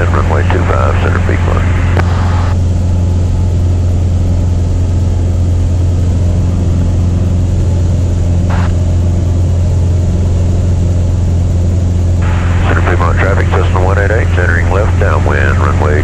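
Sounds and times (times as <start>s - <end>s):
light aircraft engine droning: 0.0s - 16.0s.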